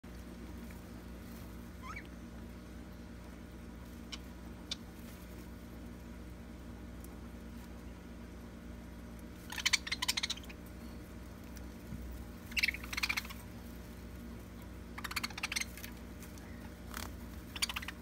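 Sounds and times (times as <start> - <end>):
steady low hum: 0.0 - 18.0
budgerigars chattering: 1.8 - 2.1, 9.5 - 10.6, 12.5 - 13.5, 14.9 - 18.0.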